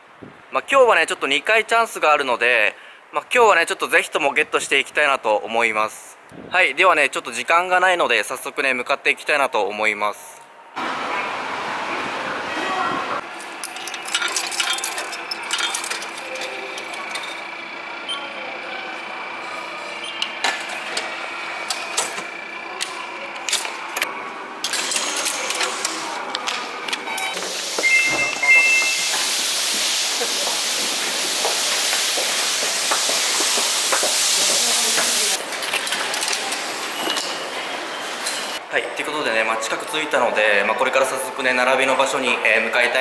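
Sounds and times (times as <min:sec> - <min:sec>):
coin clicking into ticket machine: 0:13.4 - 0:17.5, 0:24.6 - 0:26.0
footsteps: 0:25.5 - 0:35.4
two-tone beep: 0:27.1 - 0:29.2
loud steady hiss: 0:27.3 - 0:35.4.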